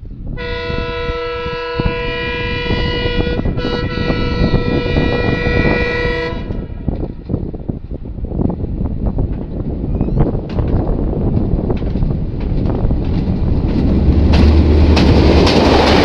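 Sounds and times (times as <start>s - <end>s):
train horn chord: 0.4s - 6.9s.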